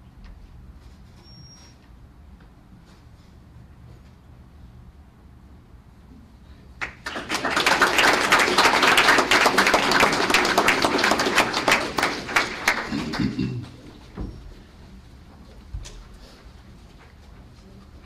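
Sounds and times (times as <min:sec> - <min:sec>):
audience applauding: 0:06.8 - 0:14.0.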